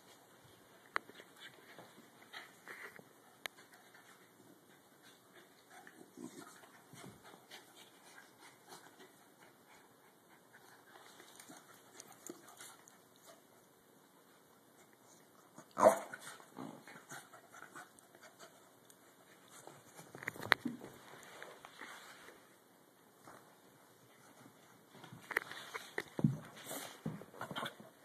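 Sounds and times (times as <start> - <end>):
dogs panting: 1.3 - 13.5.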